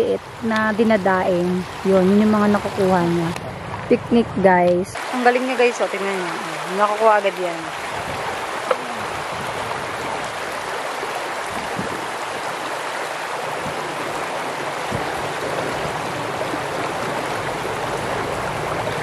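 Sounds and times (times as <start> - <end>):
river water flowing: 0.0 - 19.0.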